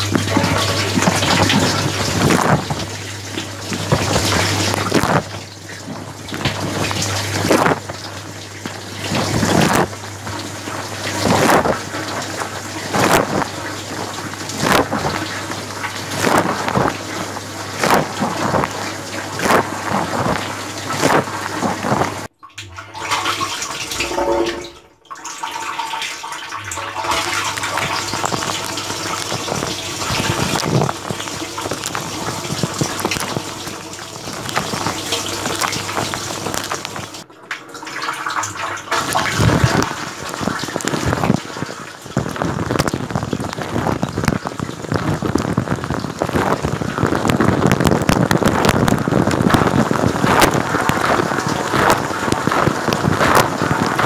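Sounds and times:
dishwasher water spraying: 0:00.0 - 0:37.3.

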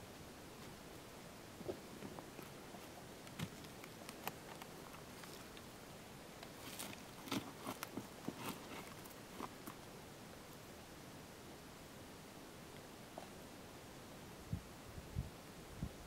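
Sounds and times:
rustling in dry grass: 0:00.5 - 0:10.0.

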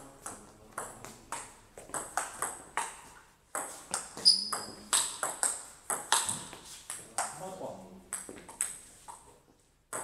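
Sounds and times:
ball bouncing on table: 0:00.2 - 0:07.3
ping pong ball hitting paddles: 0:00.2 - 0:07.5, 0:08.1 - 0:10.0
high squeak: 0:04.2 - 0:04.7.

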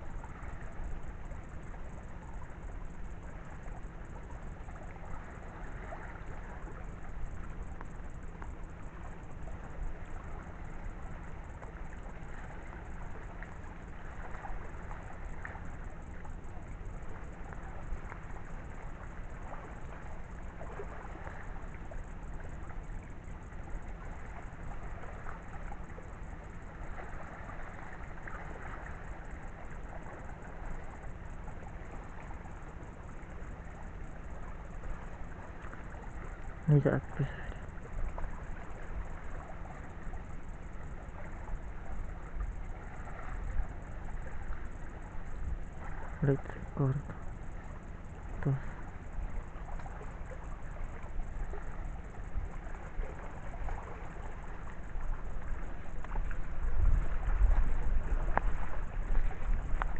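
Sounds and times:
faint crackles: 0:03.3 - 0:59.9
wind rumble on microphone: 0:34.4 - 0:59.9.

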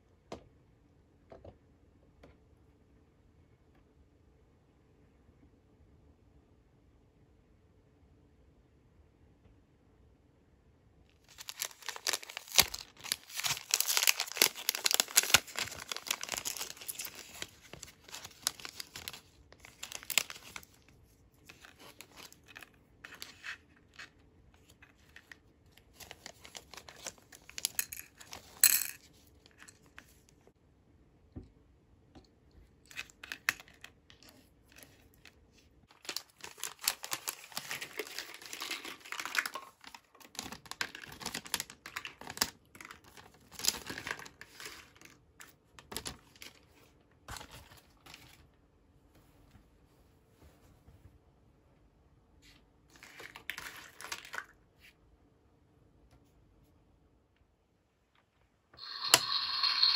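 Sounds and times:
plastic wrapping crinkling: 0:11.2 - 0:23.3, 0:35.9 - 0:45.2.

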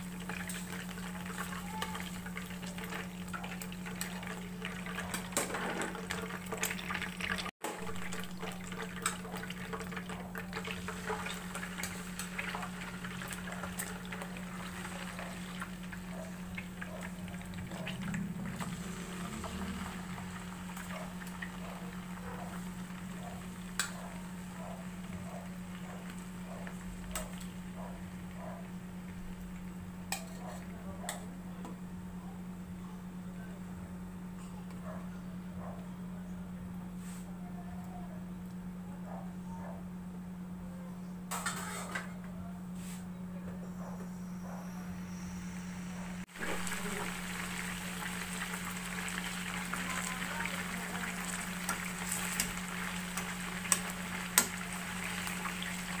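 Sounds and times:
chicken sizzling in oil: 0:00.0 - 0:30.4, 0:46.2 - 0:56.0.

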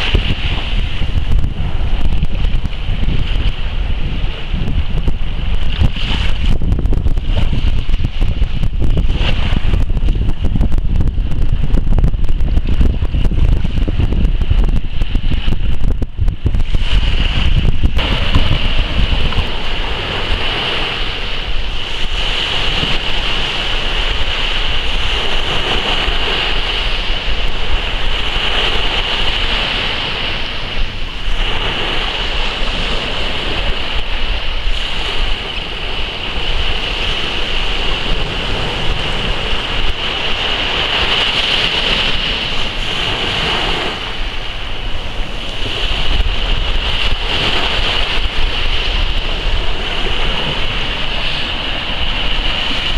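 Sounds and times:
small waves breaking on beach: 0:00.0 - 0:52.9.

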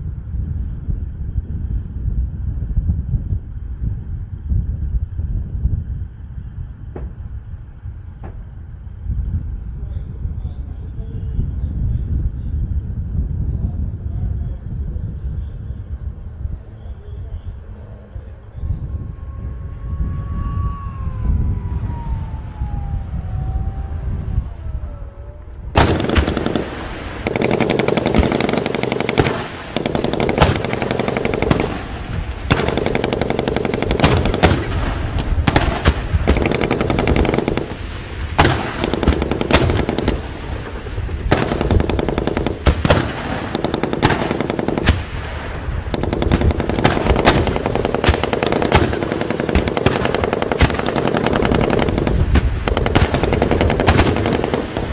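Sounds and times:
vehicle engine rumble: 0:00.0 - 0:54.9
machine gun firing bursts: 0:25.8 - 0:45.1, 0:45.9 - 0:54.9.

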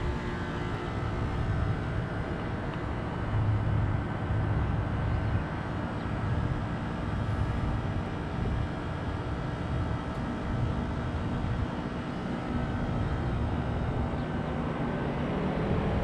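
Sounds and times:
heat pump humming: 0:00.0 - 0:16.0.

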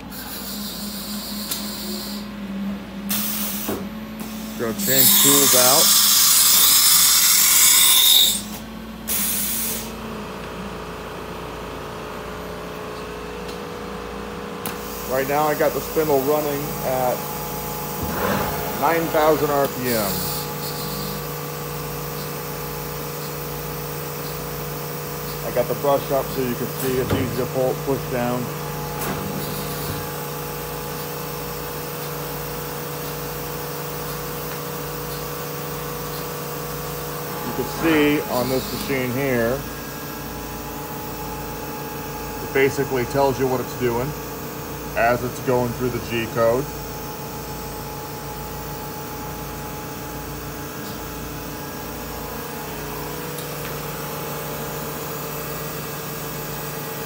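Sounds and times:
compressed air hiss: 0:09.1 - 0:10.0
router spindle hum and whine: 0:09.9 - 0:57.0.

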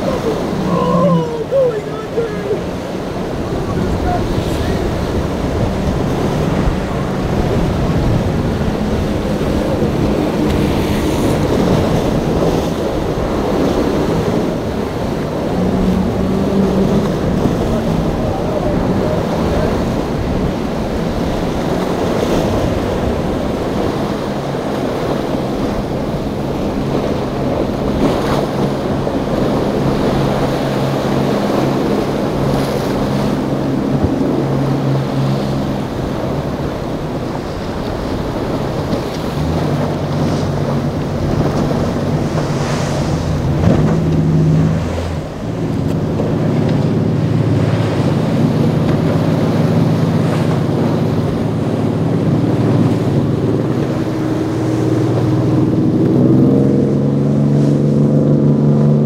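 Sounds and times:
motorboat engine droning: 0:00.0 - 0:59.0
waves breaking and spray: 0:00.0 - 0:59.0
wind buffeting microphone: 0:00.0 - 0:59.0.

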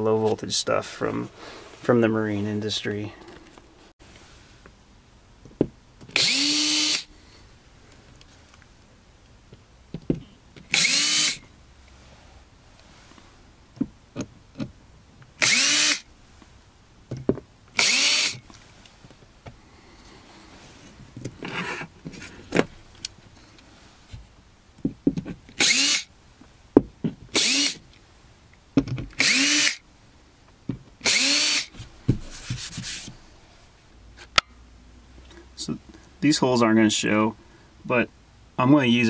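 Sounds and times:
cordless drill spinning: 0:06.2 - 0:07.1, 0:10.7 - 0:11.4, 0:15.4 - 0:16.1, 0:17.8 - 0:18.4, 0:25.6 - 0:26.1, 0:27.4 - 0:27.8, 0:29.2 - 0:29.8, 0:31.0 - 0:31.7.

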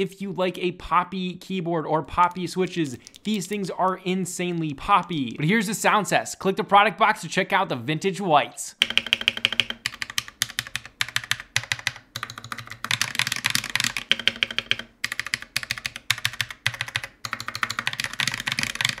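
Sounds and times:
mechanical keyboard switches typing: 0:02.6 - 0:04.0, 0:08.8 - 0:19.0.

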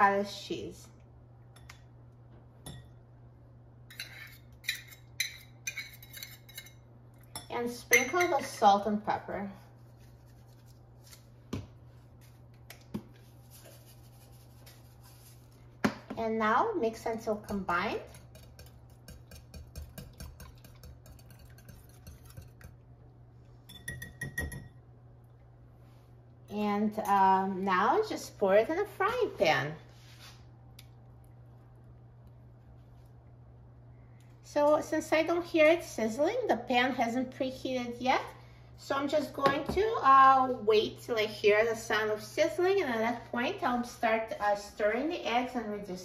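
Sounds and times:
whisk clicking in glass bowl: 0:17.5 - 0:22.7
metal spoon clinking on metal cup: 0:23.7 - 0:24.8.

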